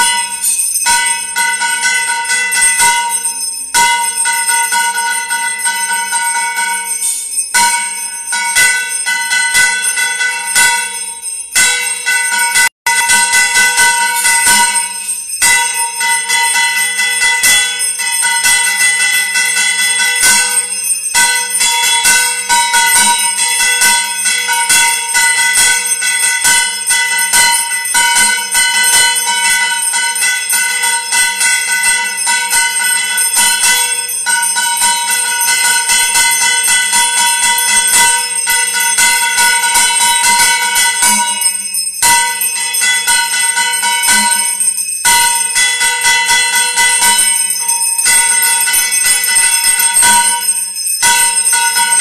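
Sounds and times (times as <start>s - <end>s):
bell ringing rapidly: 0.0s - 52.0s.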